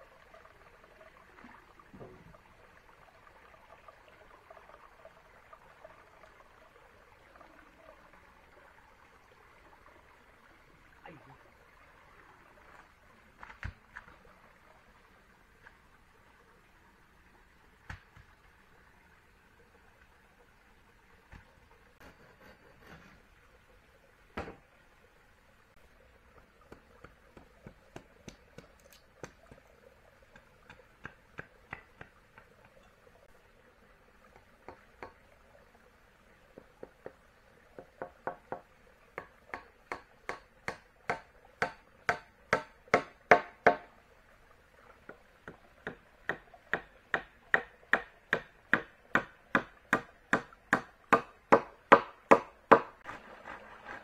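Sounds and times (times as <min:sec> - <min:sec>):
hand tool striking wood: 0:39.2 - 0:43.9, 0:45.9 - 0:53.0.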